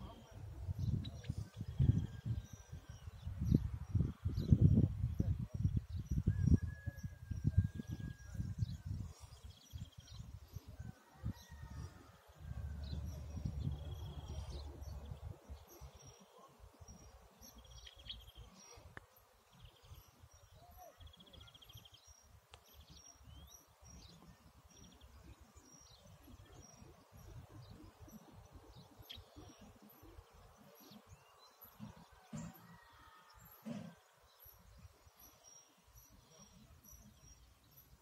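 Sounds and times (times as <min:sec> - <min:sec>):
wind rumble on microphone: 0:00.0 - 0:16.0, 0:26.0 - 0:30.3
small birds chirping: 0:00.0 - 0:38.0.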